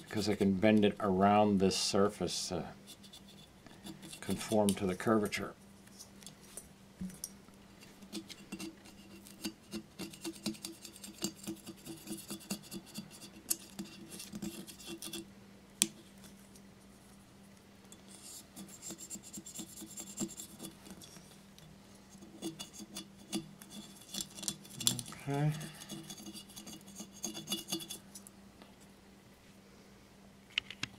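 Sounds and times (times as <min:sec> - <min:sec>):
low steady hum: 0:00.0 - 0:30.9
razor scraper scraping porcelain: 0:02.8 - 0:04.8, 0:08.0 - 0:15.2, 0:17.9 - 0:21.2, 0:22.2 - 0:28.0.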